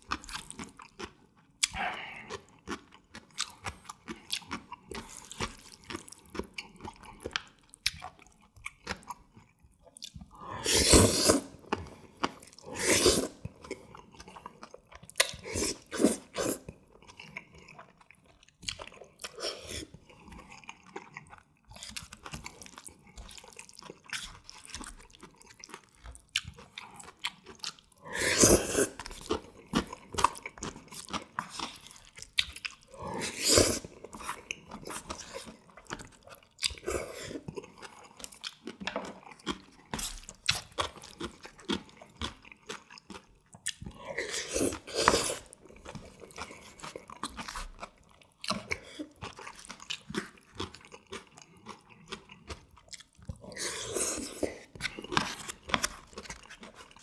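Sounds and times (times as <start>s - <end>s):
chewing noodles: 0.0s - 57.0s
loud slurps of noodles: 10.6s - 11.5s, 12.7s - 13.4s, 28.1s - 29.0s.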